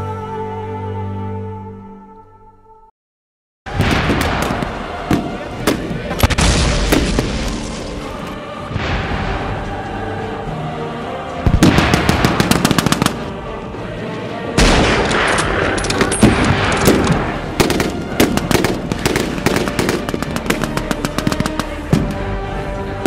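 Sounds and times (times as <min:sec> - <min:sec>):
background music: 0:00.0 - 0:02.9, 0:03.7 - 0:23.0
machine-gun fire in bursts: 0:11.5 - 0:13.3, 0:14.6 - 0:22.0.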